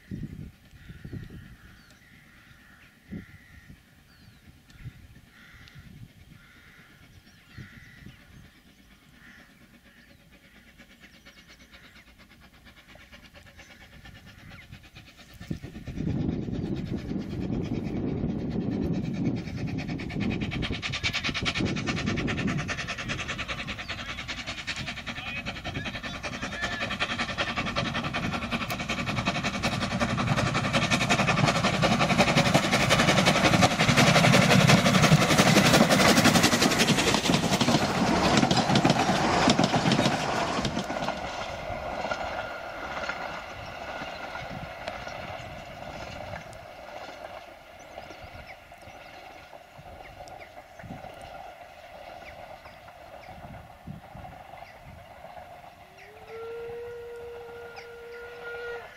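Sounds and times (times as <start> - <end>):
steam train running by: 0.0 - 58.9.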